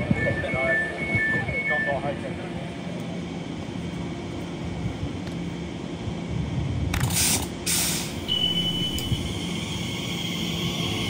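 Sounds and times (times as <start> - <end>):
electric train humming: 0.0 - 11.0
air release hisses: 7.0 - 10.8
thin high steady tone: 8.3 - 11.0.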